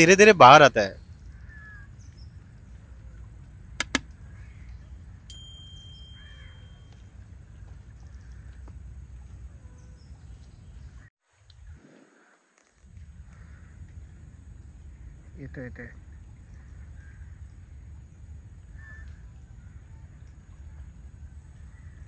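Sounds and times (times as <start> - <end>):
faint bird calls: 1.3 - 2.3, 6.1 - 6.8
sharp clicks: 3.8 - 4.1
short ringing ding: 5.3 - 7.0.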